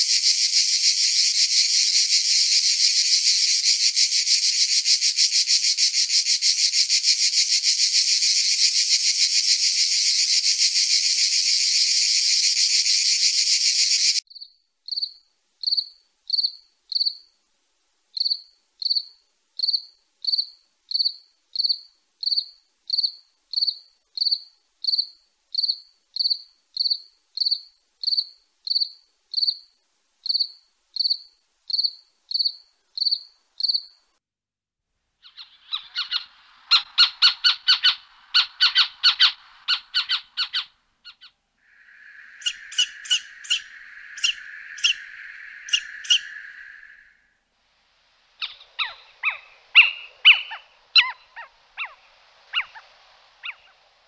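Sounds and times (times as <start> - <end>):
cricket chirping: 0.0 - 17.4, 18.1 - 34.2, 35.2 - 54.0
fast-pulsing insect buzz: 41.7 - 47.2.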